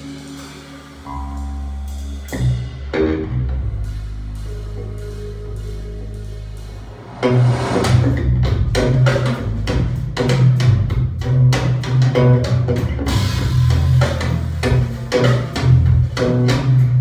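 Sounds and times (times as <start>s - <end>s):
music with drums and deep bass: 0.0s - 17.0s.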